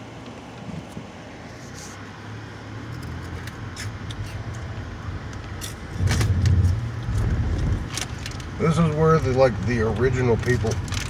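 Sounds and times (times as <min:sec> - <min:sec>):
car engine and tyre rumble: 0:00.0 - 0:11.0
heavier low rumble: 0:05.0 - 0:11.0
small clicks and rattles: 0:05.3 - 0:11.0.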